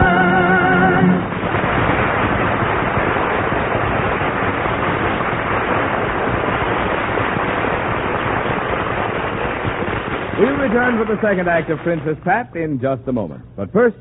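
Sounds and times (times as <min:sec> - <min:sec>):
audience applause: 0:00.0 - 0:12.5.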